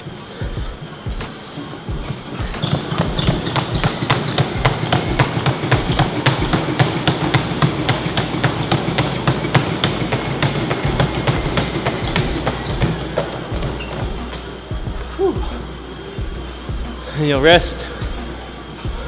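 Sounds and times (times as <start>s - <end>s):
treadmill belt rumble: 0.4s - 16.9s
footfalls pounding on treadmill: 1.9s - 15.0s.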